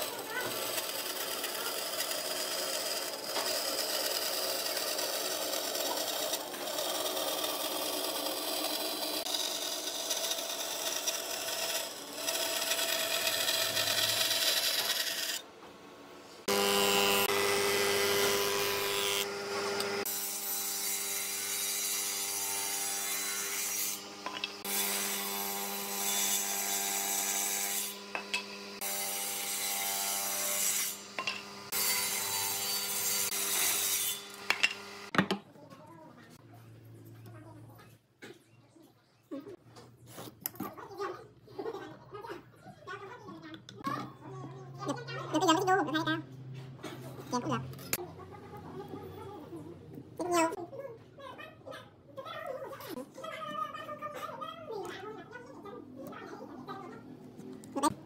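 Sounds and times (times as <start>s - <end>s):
bandsaw cutting wood: 0.0s - 15.4s, 16.4s - 35.1s
woodworking machine motor humming: 0.5s - 15.4s, 16.5s - 20.2s, 34.2s - 35.1s.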